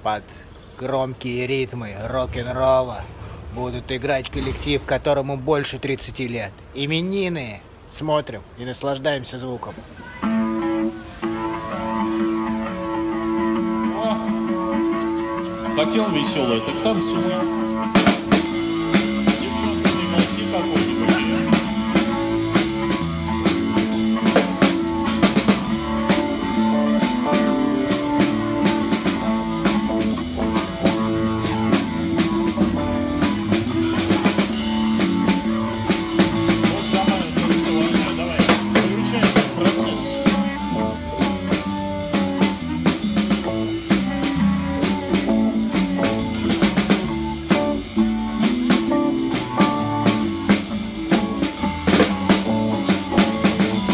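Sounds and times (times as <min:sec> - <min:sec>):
drum kit beat with rimshots: 0:02.4 - 0:06.7, 0:10.1 - 0:53.9
electric guitars: 0:10.1 - 0:53.9
rock band playing live: 0:10.2 - 0:53.9.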